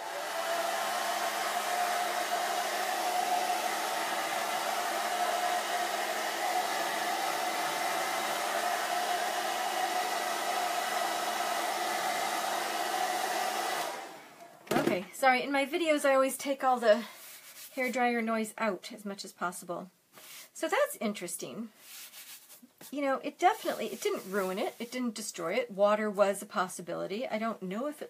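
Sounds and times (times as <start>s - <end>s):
hair dryer running: 0.0s - 14.6s.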